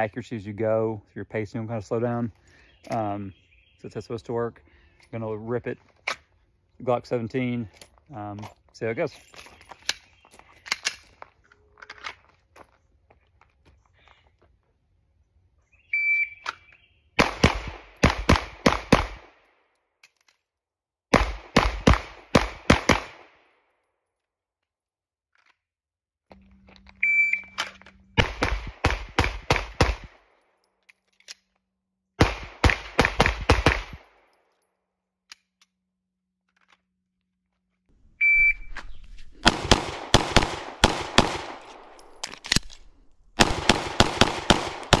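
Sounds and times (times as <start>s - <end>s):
pistol shots: 17.2s - 19.5s, 21.1s - 23.5s, 28.2s - 30.3s, 32.2s - 34.2s, 39.4s - 45.0s
short electronic beep: 27.0s - 27.6s, 38.2s - 38.8s.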